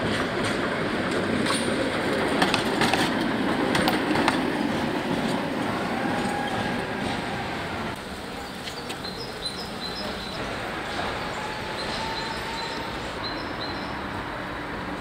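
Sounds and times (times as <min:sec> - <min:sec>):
street background: 0:00.0 - 0:15.0
tram rumbling on rails: 0:00.0 - 0:15.0
tram wheel clicks: 0:00.1 - 0:04.5.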